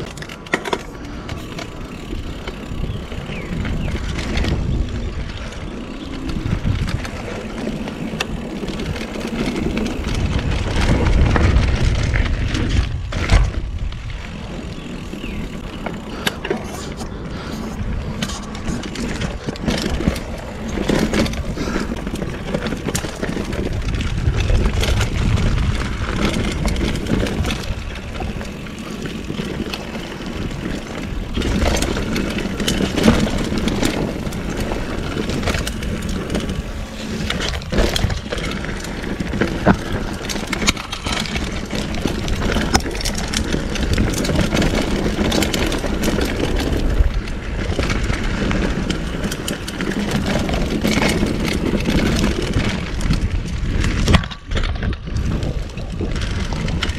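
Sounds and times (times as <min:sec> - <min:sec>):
bike rattling over rocks: 0:00.0 - 0:56.9
bike tyres rumbling on stones: 0:00.0 - 0:56.9.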